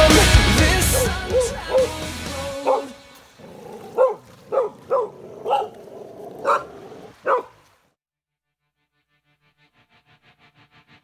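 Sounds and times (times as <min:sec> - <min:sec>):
dog barking: 0:00.9 - 0:01.9, 0:02.6 - 0:03.0, 0:03.6 - 0:07.6.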